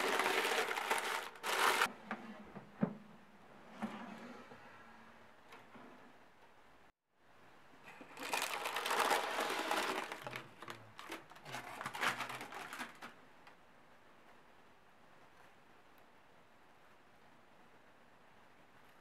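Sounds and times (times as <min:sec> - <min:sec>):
parchment paper crinkling: 0:00.0 - 0:01.9, 0:08.2 - 0:13.2.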